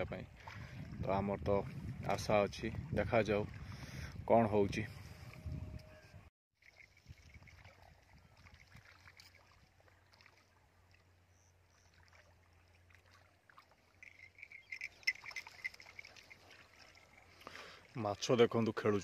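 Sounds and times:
thin high chirps: 14.0 - 16.4.

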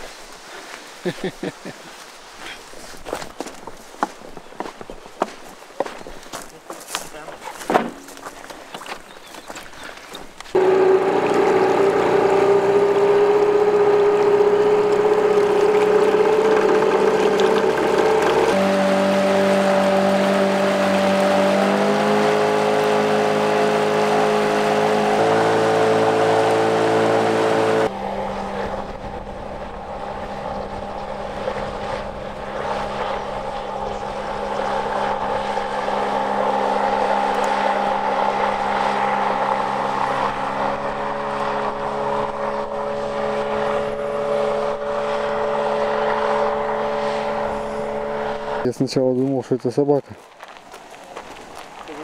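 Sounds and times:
car engine and road noise: 2.2 - 52.0
sustained music chords: 10.6 - 48.6.

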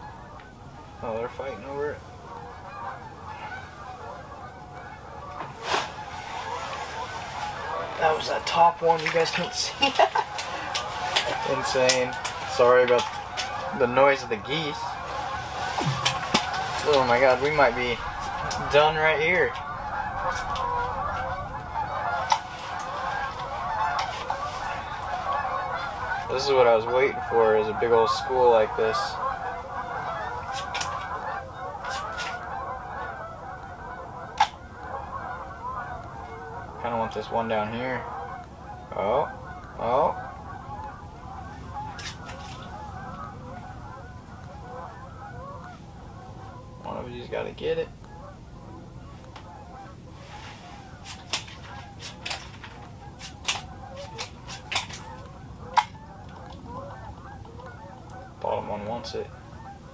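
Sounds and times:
flock of geese honking: 0.0 - 59.9.

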